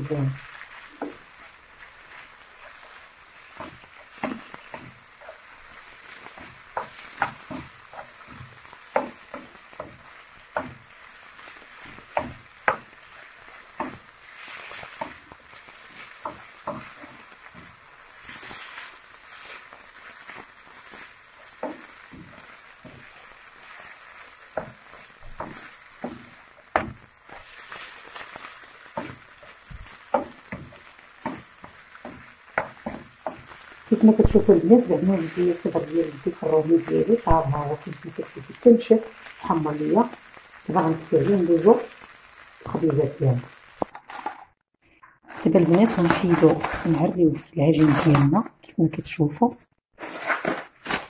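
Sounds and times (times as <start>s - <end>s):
filling sizzling in a frying pan: 0.0s - 44.5s, 45.2s - 48.4s, 49.9s - 51.0s
spatula scraping a pan: 0.2s - 37.2s, 45.3s - 47.1s, 50.0s - 51.0s.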